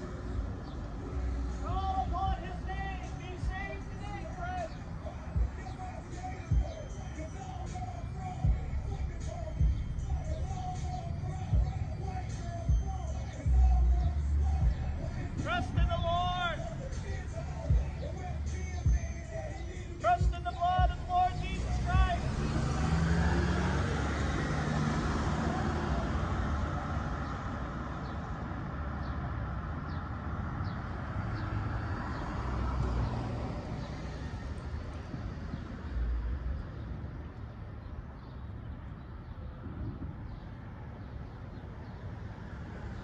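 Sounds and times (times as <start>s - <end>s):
street traffic hum: 0.0s - 43.0s
car passing close by: 21.4s - 27.9s.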